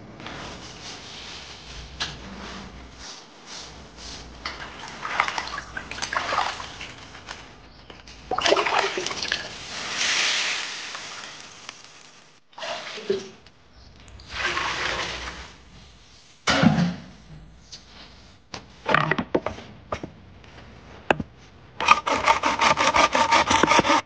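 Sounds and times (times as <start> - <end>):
water sloshing in a wok: 4.4 - 7.3, 8.3 - 11.6, 12.5 - 13.4, 14.2 - 15.8
steady hiss of hot wok: 9.5 - 12.4.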